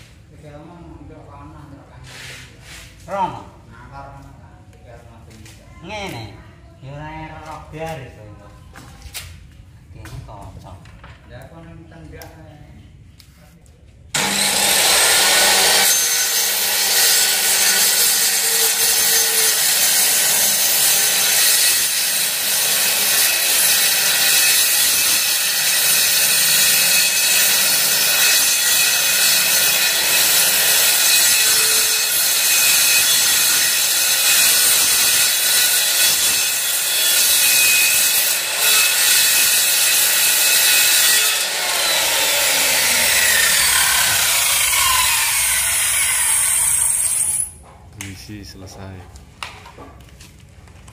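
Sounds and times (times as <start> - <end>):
circular saw cutting wood: 14.2 - 47.6.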